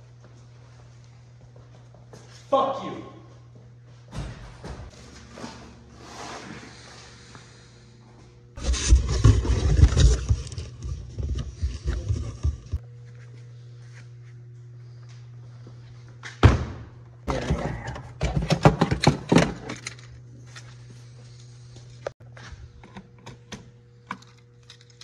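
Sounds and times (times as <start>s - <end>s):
steady low hum: 0.0s - 25.0s
objects clattering and knocking: 8.6s - 12.8s, 17.3s - 20.1s.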